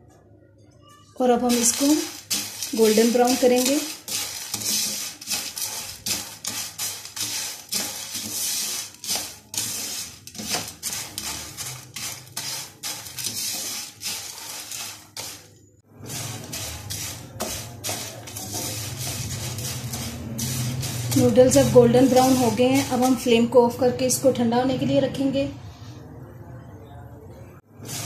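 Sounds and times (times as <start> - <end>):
spatula scraping noodles in pan: 1.3 - 23.6, 27.8 - 28.0
dry noodles rustling: 1.4 - 15.5, 16.1 - 23.3.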